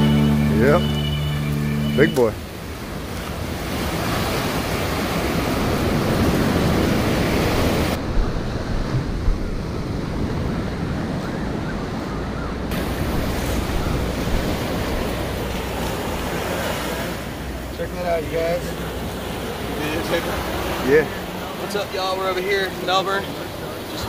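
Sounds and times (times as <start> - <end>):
ocean waves breaking: 0.0 - 24.0
wind buffeting microphone: 2.6 - 21.5.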